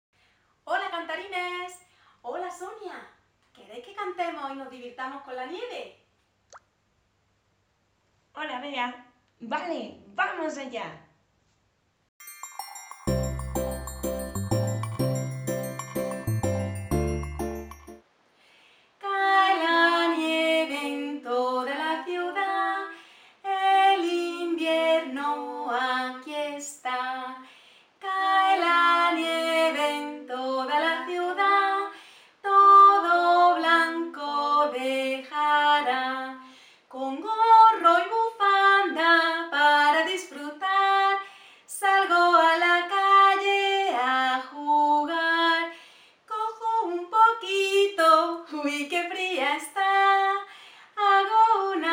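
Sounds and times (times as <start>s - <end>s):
woman singing unaccompanied: 19.0s - 27.4s, 28.0s - 45.7s, 46.3s - 51.9s.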